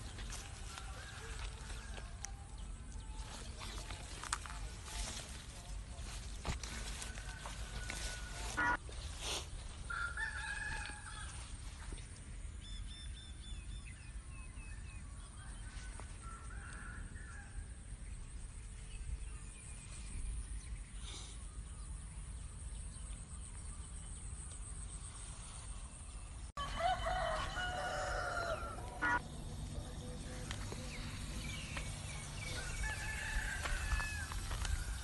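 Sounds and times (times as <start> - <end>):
rooster crowing: 7.0 - 8.8, 9.8 - 11.4, 26.6 - 29.2, 32.3 - 35.0
fowl calls: 7.4 - 8.8, 26.7 - 29.2
small birds chirping: 27.5 - 35.0
steady low rumble: 28.5 - 35.0.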